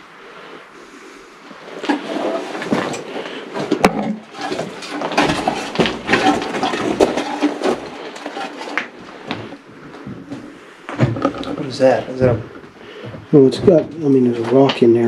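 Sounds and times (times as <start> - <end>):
rocks knocking and scraping: 1.8 - 12.6.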